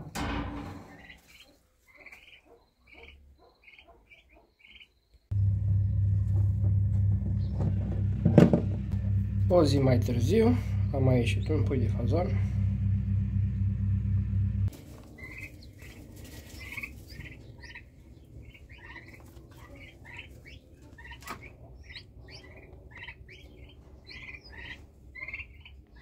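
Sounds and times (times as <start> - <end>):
chicks peeping: 0.9 - 4.9, 14.7 - 26.0
loud steady hum: 5.3 - 15.6
faint low hum: 5.3 - 21.0.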